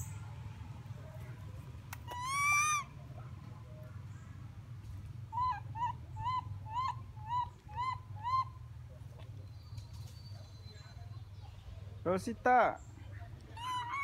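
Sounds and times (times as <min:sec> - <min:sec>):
short arched animal calls: 0:02.0 - 0:03.0.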